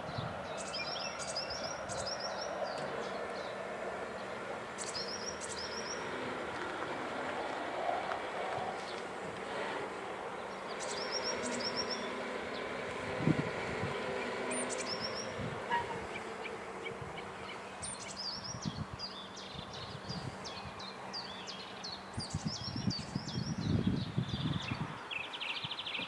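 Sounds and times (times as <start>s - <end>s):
songbird chirping: 0.0s - 26.0s
barrier motor humming: 2.5s - 18.0s.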